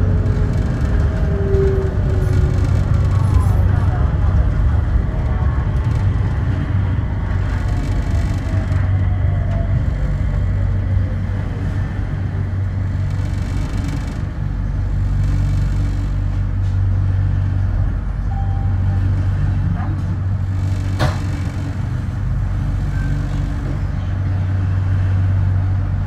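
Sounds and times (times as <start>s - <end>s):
train low rumble and hum: 0.0s - 26.0s.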